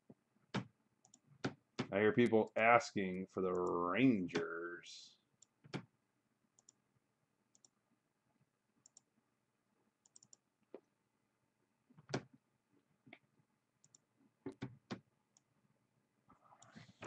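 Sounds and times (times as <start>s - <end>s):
mouse and keyboard clicks: 10.0s - 10.4s.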